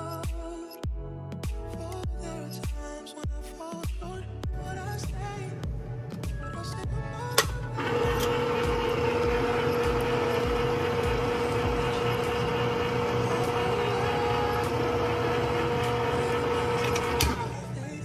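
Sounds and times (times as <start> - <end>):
electric can opener running: 7.8 - 17.6.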